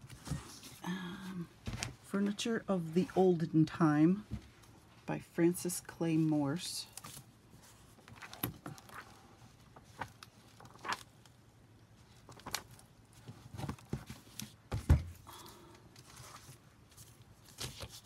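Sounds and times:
book pages rustling: 6.2 - 14.8, 16.0 - 18.0.

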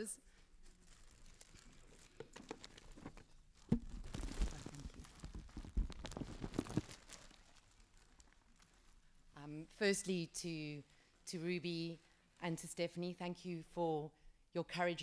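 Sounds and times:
wrapping crinkling and rustling: 0.4 - 9.4.

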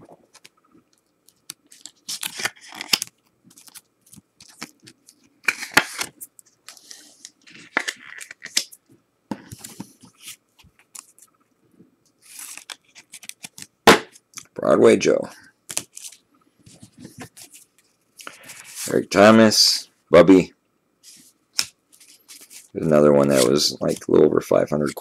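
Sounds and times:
cards scraping against plastic: 1.4 - 8.8, 12.2 - 13.7, 21.6 - 24.1.

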